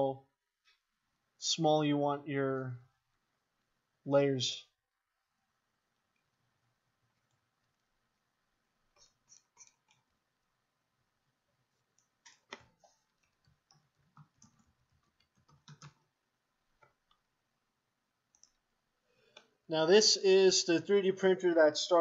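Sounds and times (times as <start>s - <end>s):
keyboard and mouse clicks: 8.9s - 10.2s, 11.9s - 16.1s, 18.3s - 18.7s.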